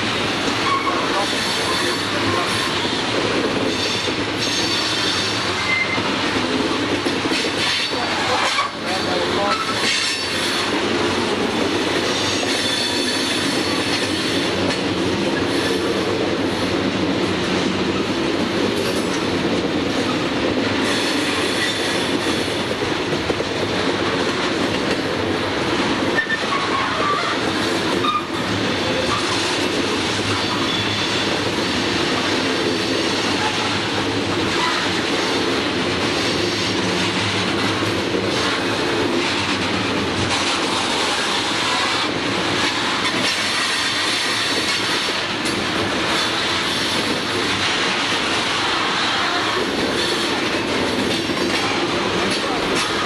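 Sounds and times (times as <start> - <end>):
train cars rumbling on rails: 0.0 - 53.0
faint high wheel squeal: 30.4 - 31.2.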